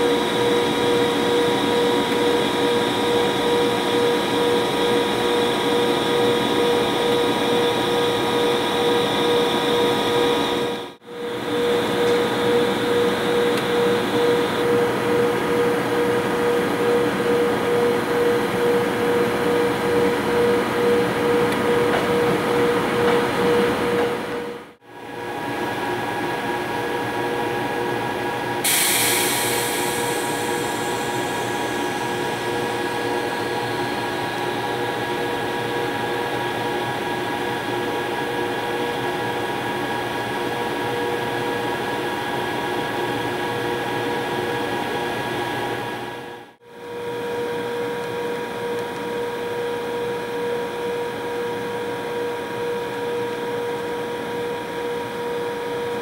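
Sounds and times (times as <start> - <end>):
locomotive machinery humming and whining: 0.0 - 56.0
air hiss: 28.6 - 32.8.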